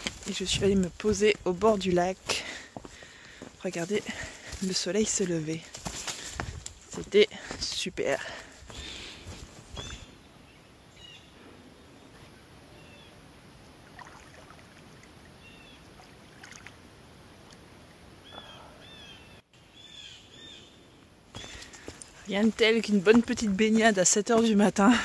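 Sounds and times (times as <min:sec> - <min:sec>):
bird chirps: 0:18.2 - 0:21.8.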